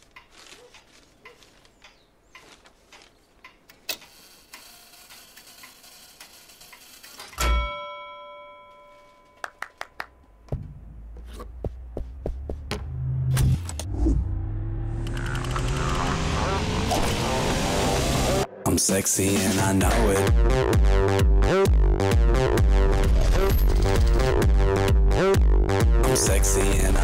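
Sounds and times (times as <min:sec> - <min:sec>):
small ticks: 0:00.1 - 0:07.1
ringing chime: 0:07.4 - 0:09.7.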